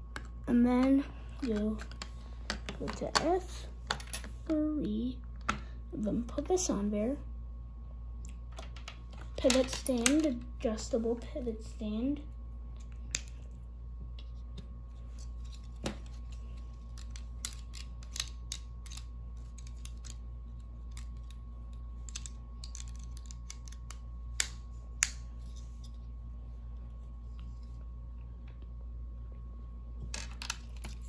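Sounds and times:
steady low hum: 0.0s - 31.0s
plastic parts clicking and rattling: 15.5s - 21.4s, 22.0s - 25.2s.

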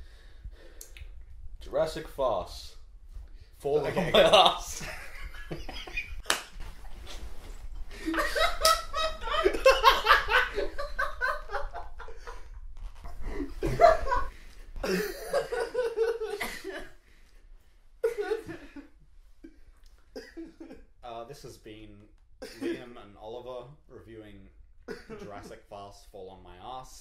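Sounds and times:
men laughing: 3.8s - 6.2s, 7.8s - 17.0s, 18.0s - 18.9s, 20.2s - 20.8s, 24.9s - 25.5s.

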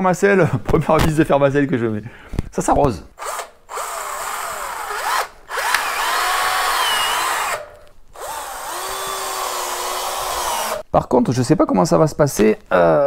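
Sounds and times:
cordless drill driving screw: 3.2s - 10.8s.

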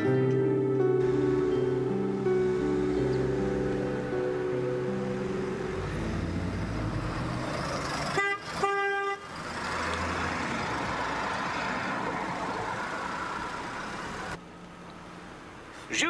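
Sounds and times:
car engine and tyre noise: 0.0s - 16.0s
car horn tooting: 8.1s - 9.3s.

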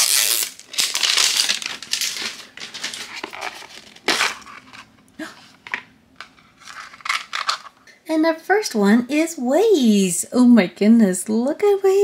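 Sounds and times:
plastic wrapper crinkling and tearing: 0.0s - 4.9s, 6.2s - 7.8s.

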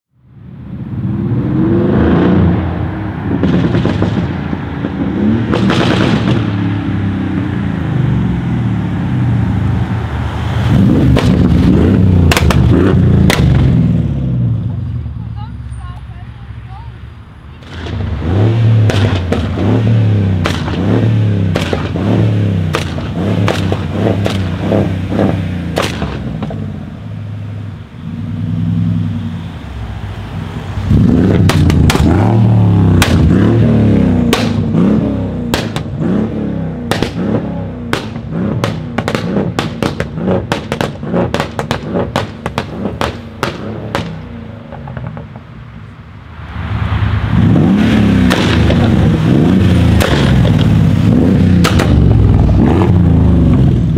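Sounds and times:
car engine revving: 0.8s - 15.0s, 17.6s - 45.6s, 46.4s - 53.9s
exhaust pops and bangs: 3.3s - 6.6s, 11.0s - 13.8s, 18.8s - 26.6s, 31.3s - 33.4s, 34.2s - 34.8s, 35.4s - 36.0s, 36.8s - 45.4s, 47.8s - 52.6s.

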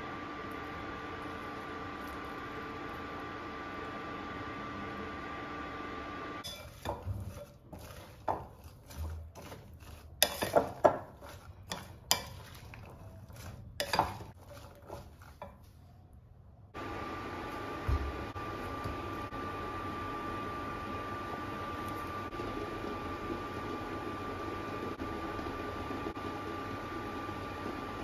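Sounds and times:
spoon scraping in ceramic bowl: 6.4s - 15.7s.

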